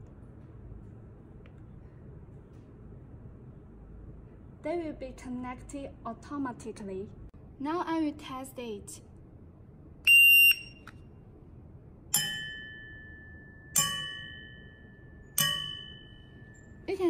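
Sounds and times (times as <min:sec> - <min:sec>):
shot timer beep: 0:10.1 - 0:10.9
pen tapping metal plate: 0:15.4 - 0:16.1.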